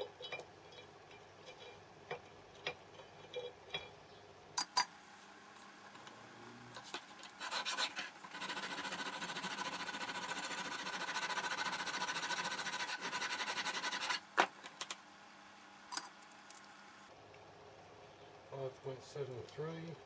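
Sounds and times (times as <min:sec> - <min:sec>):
file rasping on metal: 0:07.4 - 0:14.2.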